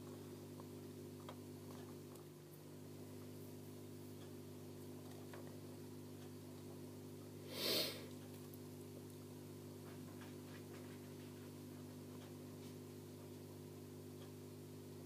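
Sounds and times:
steady low hum: 0.0s - 15.0s
sniff close to microphone: 7.5s - 8.1s.

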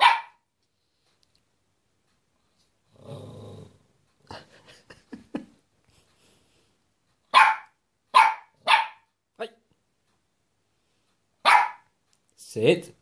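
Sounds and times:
dog barking: 0.0s - 0.4s, 7.3s - 9.1s, 11.4s - 11.9s
dog growling: 2.9s - 3.9s.

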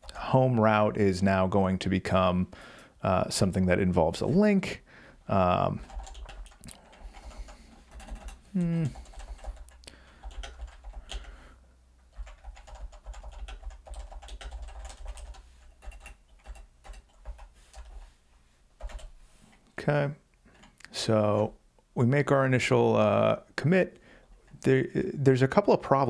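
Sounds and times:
typing on computer keyboard: 5.8s - 8.4s, 9.0s - 11.3s, 12.1s - 18.0s, 18.8s - 19.1s.

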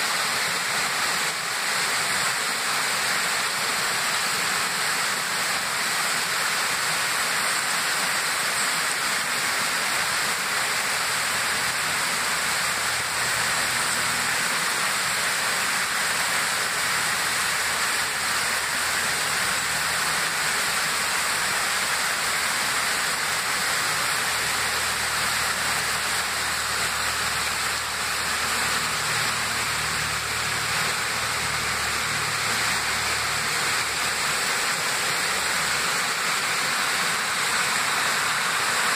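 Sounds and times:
mountain stream rushing: 0.0s - 38.9s.

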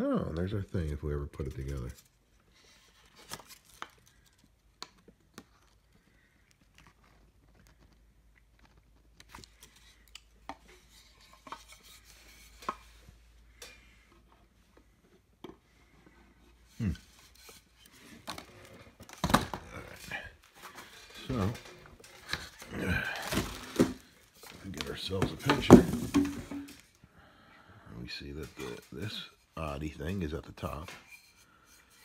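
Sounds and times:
wooden parts knocking together: 18.3s - 20.1s, 20.8s - 26.9s.

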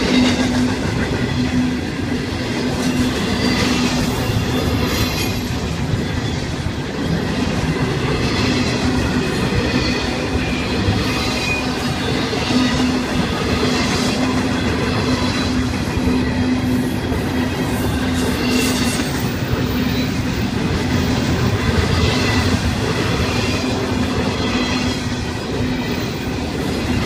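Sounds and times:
freight train wheels on rails: 0.0s - 27.0s
train clatter: 0.0s - 27.0s.

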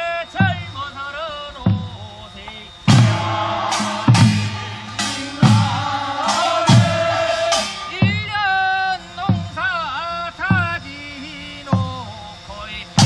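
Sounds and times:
traditional percussion: 1.6s - 13.0s
group singing folk song: 2.4s - 9.5s
loud drum strokes: 2.9s - 9.8s.

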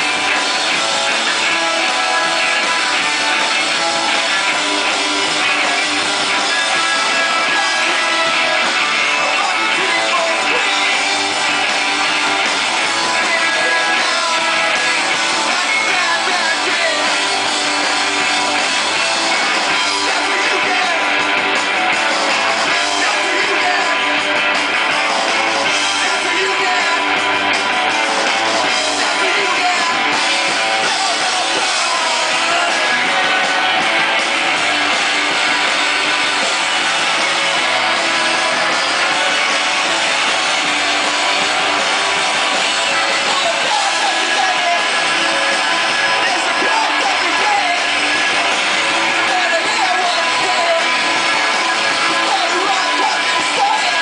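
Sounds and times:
bass guitar: 0.0s - 54.0s
drum kit: 0.0s - 54.0s
electric guitars: 0.0s - 54.0s
man singing: 0.4s - 11.6s, 12.9s - 18.1s, 19.3s - 21.3s, 22.2s - 24.2s, 25.7s - 27.2s, 28.6s - 33.8s, 42.4s - 51.3s, 51.9s - 54.0s.

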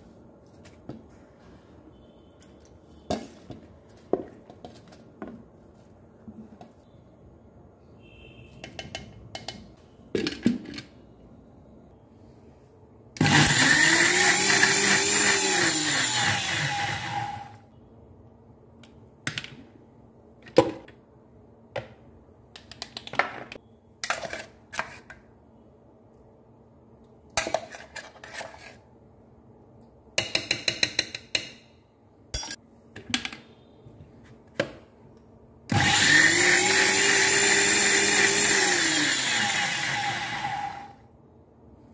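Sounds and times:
mixer grinder motor running: 13.2s - 17.6s, 35.7s - 40.9s.

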